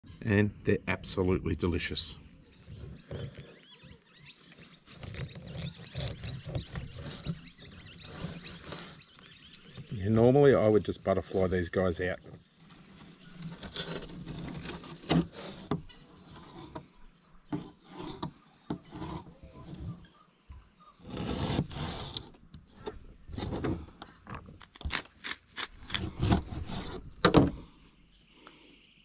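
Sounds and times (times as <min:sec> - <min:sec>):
knife scraping on work surface: 0:17.6 - 0:20.0, 0:21.0 - 0:22.3, 0:24.9 - 0:27.2.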